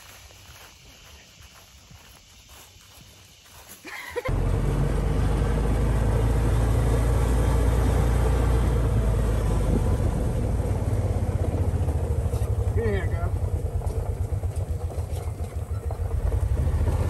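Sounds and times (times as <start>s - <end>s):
utility vehicle engine droning: 4.3s - 17.0s.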